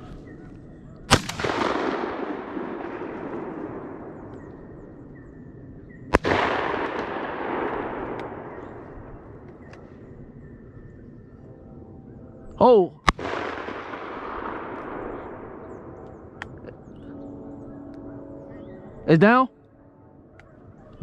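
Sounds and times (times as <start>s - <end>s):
rolling echo: 0.0s - 21.0s
shotgun blasts: 1.1s - 4.6s, 6.1s - 9.4s, 13.0s - 16.0s.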